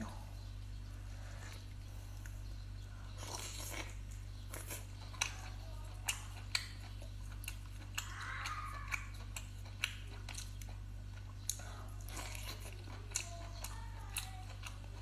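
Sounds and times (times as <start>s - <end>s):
steady low hum: 0.0s - 15.0s
chewing clicks and smacks: 3.2s - 15.0s.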